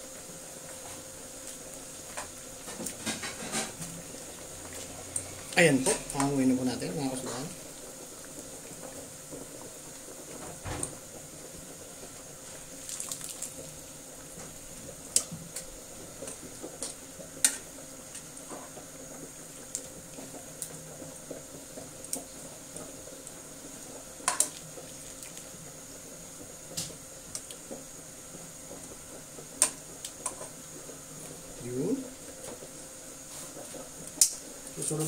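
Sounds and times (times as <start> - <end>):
water bubbling at a boil: 0.0 - 35.0
water dripping: 12.8 - 13.6
tongs clicking against pan: 34.1 - 34.4.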